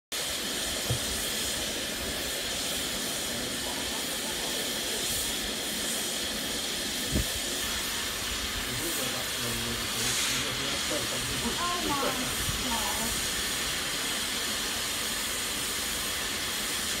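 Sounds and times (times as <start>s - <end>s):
steam venting hiss: 0.1s - 17.0s.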